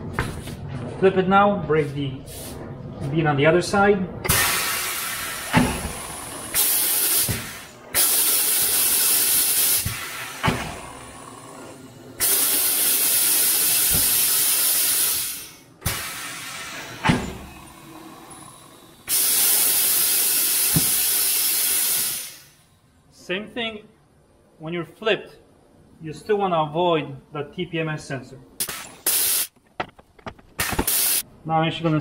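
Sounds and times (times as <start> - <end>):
compressed air hissing: 2.3 - 2.6, 4.3 - 22.6, 28.6 - 29.6, 30.6 - 31.2.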